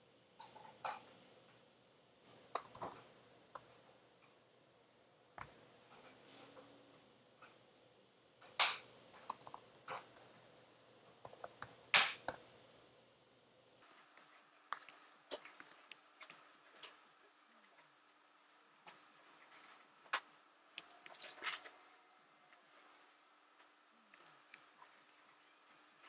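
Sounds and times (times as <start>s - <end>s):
computer keyboard typing: 2.5s - 3.7s, 9.3s - 12.4s.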